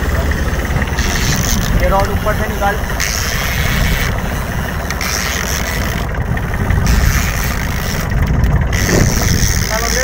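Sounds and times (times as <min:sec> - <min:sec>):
boat engine rumbling: 0:00.0 - 0:10.0
water noise: 0:00.0 - 0:10.0
wind: 0:00.0 - 0:10.0.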